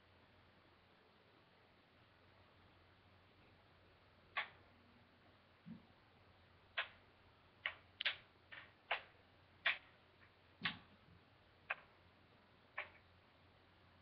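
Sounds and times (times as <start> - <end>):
wooden kendama clacking: 4.4 - 4.6, 12.8 - 13.0.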